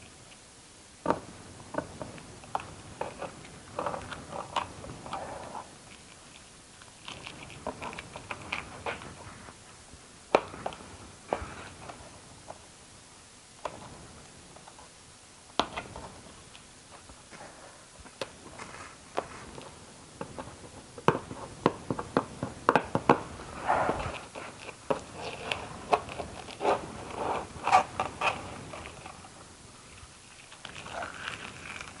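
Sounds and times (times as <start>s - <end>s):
crinkly rustling scraping: 18.4s - 19.7s, 23.4s - 32.0s
hands clicking and tapping things: 19.1s - 23.3s.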